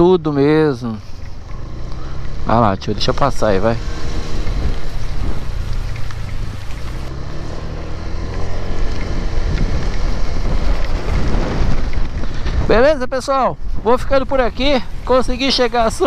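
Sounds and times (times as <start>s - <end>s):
motorcycle engine running: 0.2s - 12.8s
strong wind on microphone: 9.1s - 16.0s.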